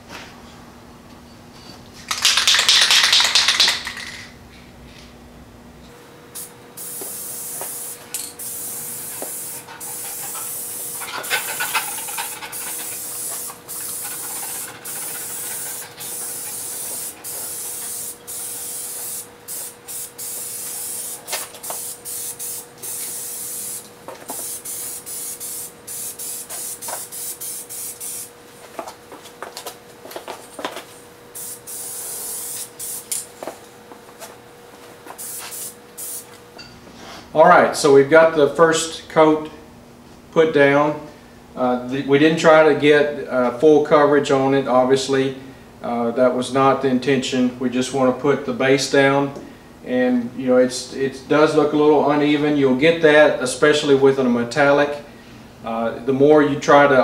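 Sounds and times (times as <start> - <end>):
spray paint can hissing: 2.1 - 4.3, 6.4 - 28.3, 31.4 - 33.2, 35.1 - 36.4.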